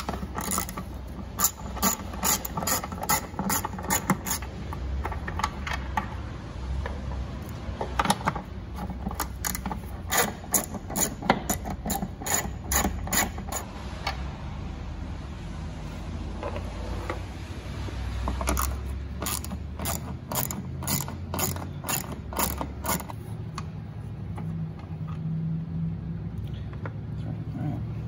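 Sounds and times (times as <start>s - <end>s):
hand ratchet clicking: 0.0s - 5.8s, 8.8s - 13.7s, 18.4s - 23.6s.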